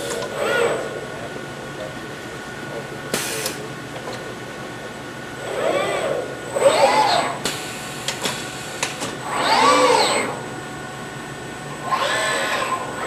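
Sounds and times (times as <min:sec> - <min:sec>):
robot arm servo whining: 0:00.2 - 0:00.9, 0:05.4 - 0:07.4, 0:09.2 - 0:10.4, 0:11.8 - 0:13.0.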